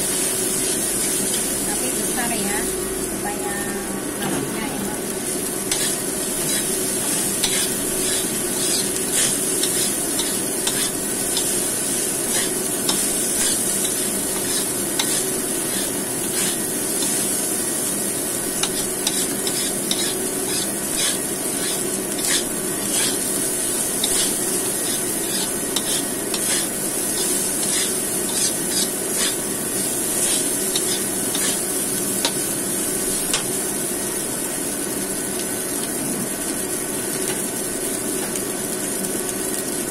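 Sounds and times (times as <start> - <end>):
rice sizzling in a wok: 0.0 - 39.9
metal spatula scraping pan: 18.6 - 23.2, 24.0 - 29.4.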